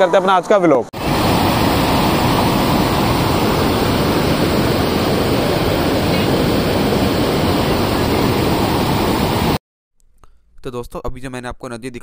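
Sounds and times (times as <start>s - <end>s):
river water rushing: 1.0s - 9.6s.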